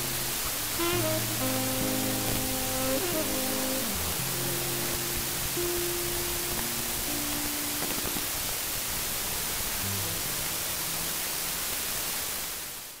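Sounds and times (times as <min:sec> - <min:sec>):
faint music with held notes: 0:00.0 - 0:08.8
steady hiss: 0:00.0 - 0:13.0.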